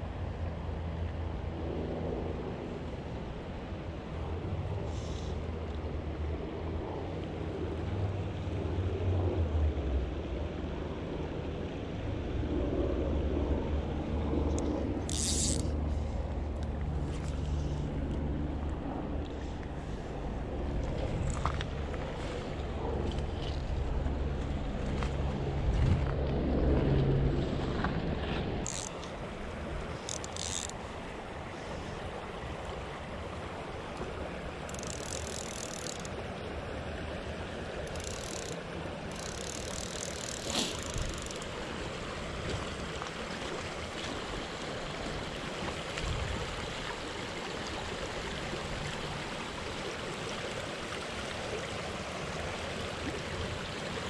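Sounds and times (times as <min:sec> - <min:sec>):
creek water over gravel: 0:14.1 - 0:54.0
wind buffeting microphone: 0:20.5 - 0:28.7.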